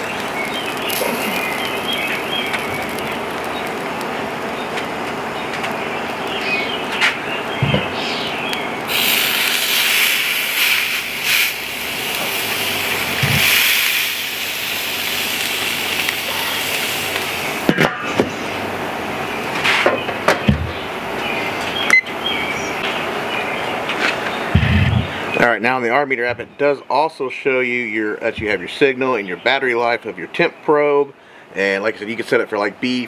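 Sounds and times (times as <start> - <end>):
steak sizzling on grill: 0.0 - 18.7.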